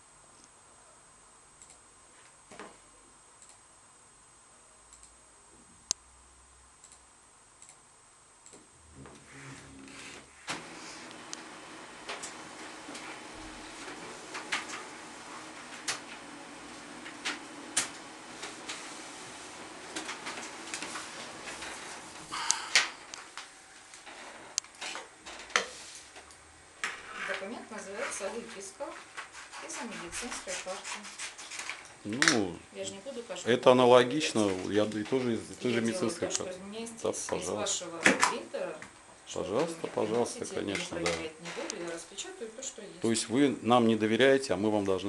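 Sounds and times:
computer mouse clicks: 0:01.6 - 0:01.8, 0:03.4 - 0:03.6, 0:04.9 - 0:05.2, 0:06.8 - 0:07.0, 0:07.6 - 0:07.8
paper rustling: 0:09.9 - 0:23.4.

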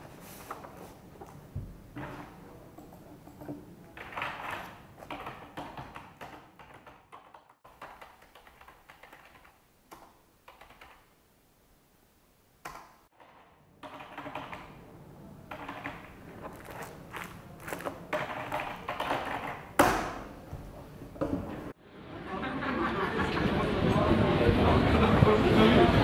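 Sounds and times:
computer keyboard typing: 0:02.8 - 0:11.1, 0:13.8 - 0:14.8, 0:15.5 - 0:19.7.

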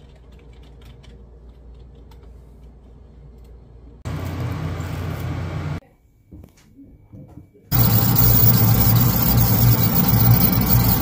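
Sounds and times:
computer keyboard typing: 0:07.7 - 0:11.0
low steady hum: 0:07.7 - 0:11.0.

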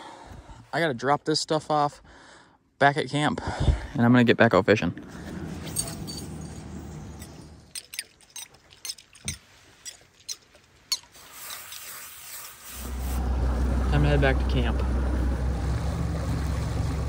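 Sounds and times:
low rumbling: 0:12.9 - 0:17.0.

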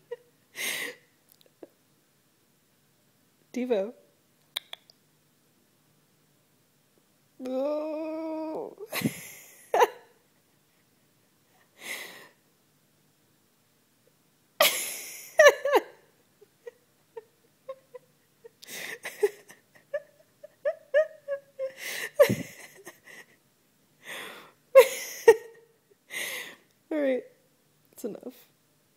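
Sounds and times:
person giggling: 0:08.7 - 0:10.1, 0:14.6 - 0:23.4, 0:24.8 - 0:25.6
person laughing breathily: 0:08.8 - 0:10.0, 0:14.6 - 0:23.4.

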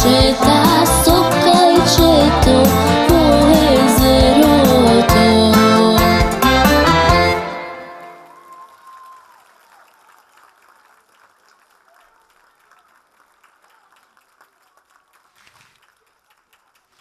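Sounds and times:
faint audience applause: 0:06.6 - 0:17.0.

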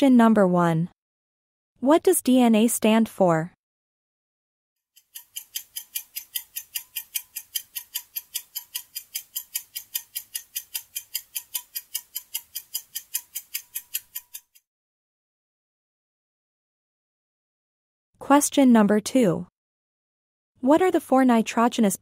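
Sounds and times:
rapid clock ticking: 0:04.9 - 0:14.6.

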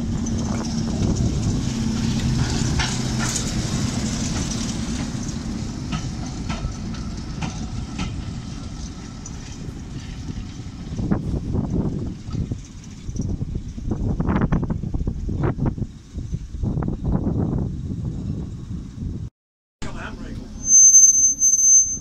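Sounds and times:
train wagons clanking: 0:00.0 - 0:13.9
diesel locomotive engine running: 0:00.0 - 0:20.7.

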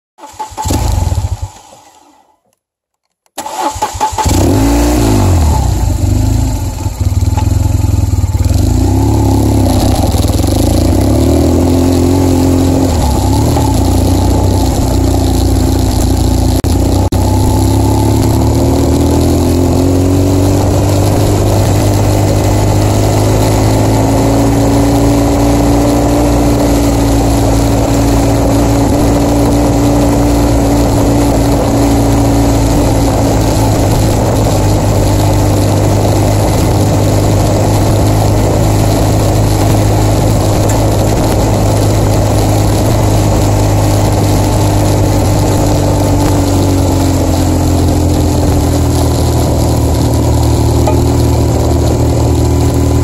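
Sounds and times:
motorcycle engine running: 0:03.6 - 0:53.0.

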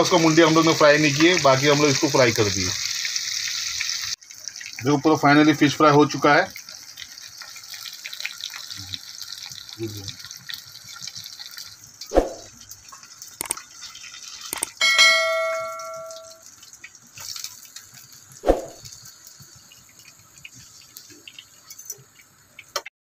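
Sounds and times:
sharp clicks: 0:13.4 - 0:13.6, 0:14.5 - 0:14.8
bright bell ding: 0:14.7 - 0:16.4.

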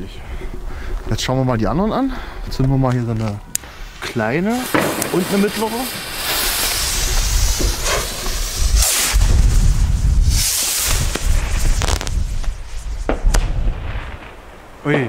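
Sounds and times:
firework fuse fizzing: 0:03.5 - 0:15.0
rockets launching with whoosh: 0:03.8 - 0:15.0
firework pops: 0:04.0 - 0:15.0.

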